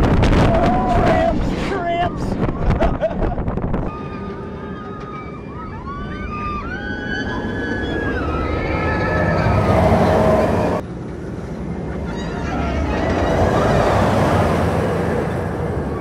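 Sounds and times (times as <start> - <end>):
roller coaster rushing: 0.0 - 16.0
high wavering tones: 3.9 - 10.8.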